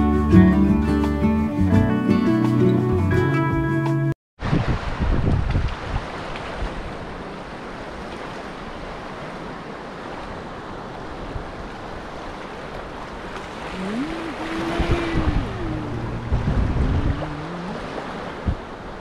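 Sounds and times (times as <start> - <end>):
wind buffeting microphone: 4.4 - 7.0, 13.4 - 19.0
surf washing: 4.4 - 19.0
rising pitched tone: 13.7 - 18.0.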